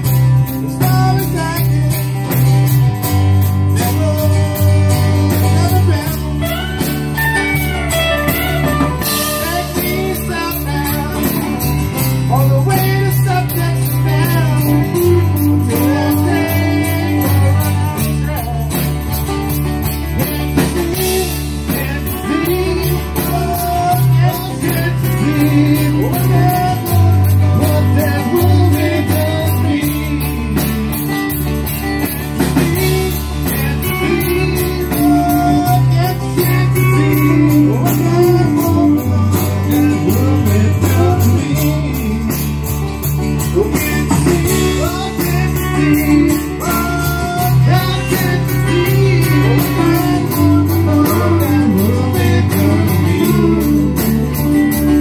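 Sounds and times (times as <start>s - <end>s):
bass notes: 0.0s - 55.0s
drums and cymbals: 0.0s - 55.0s
electric guitars: 0.0s - 55.0s
man singing: 0.0s - 55.0s.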